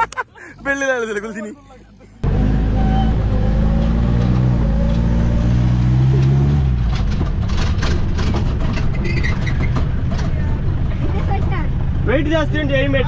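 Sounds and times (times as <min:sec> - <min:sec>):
sharp knocks and clatters: 0:06.1 - 0:10.5.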